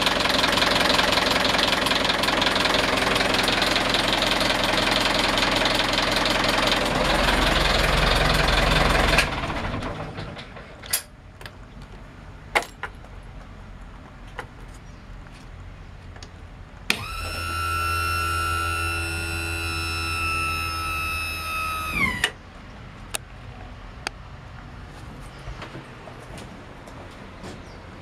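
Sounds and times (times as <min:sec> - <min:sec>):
marine diesel engine running: 0:00.0 - 0:10.6.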